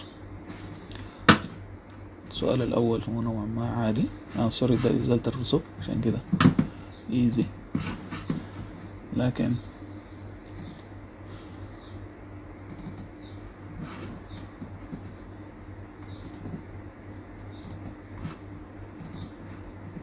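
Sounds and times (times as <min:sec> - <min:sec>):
low electrical hum: 0:00.0 - 0:20.0
laptop clicks: 0:10.4 - 0:10.8, 0:12.7 - 0:13.1, 0:19.0 - 0:19.4.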